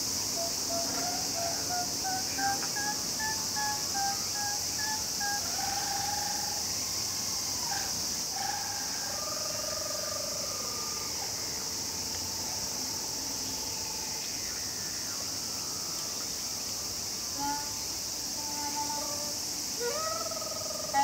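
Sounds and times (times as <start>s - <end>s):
insects droning: 0.0s - 21.0s
wind instrument held notes: 0.4s - 6.3s, 17.2s - 20.3s.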